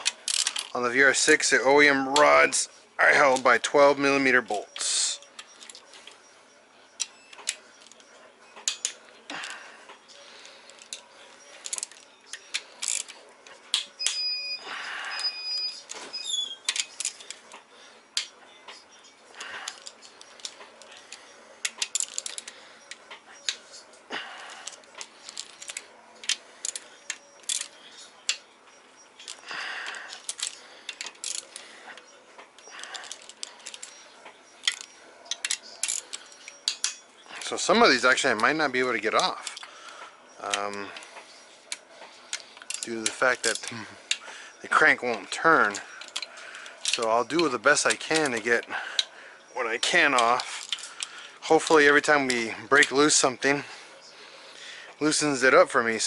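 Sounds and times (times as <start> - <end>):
steel tools clinking: 0.0 - 6.3, 6.9 - 54.1
hand ratchet clicking: 11.6 - 13.1, 32.6 - 33.9, 34.6 - 39.8, 41.7 - 53.2.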